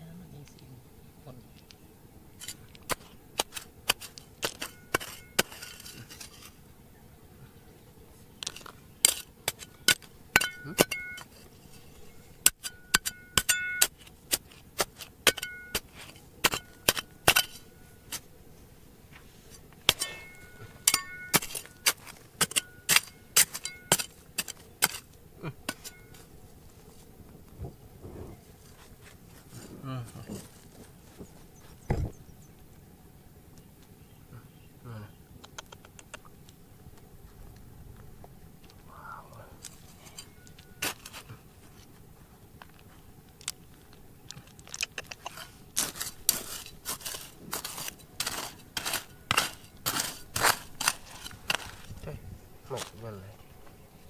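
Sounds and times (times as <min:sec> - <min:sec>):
hard objects clinking: 0:02.4 - 0:06.5, 0:08.4 - 0:18.2, 0:19.9 - 0:26.3, 0:44.3 - 0:52.0.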